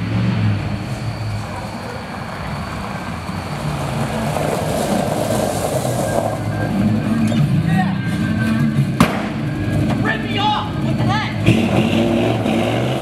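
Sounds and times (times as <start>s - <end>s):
truck engine running: 0.0s - 13.0s
tyres crunching on gravel: 0.9s - 13.0s.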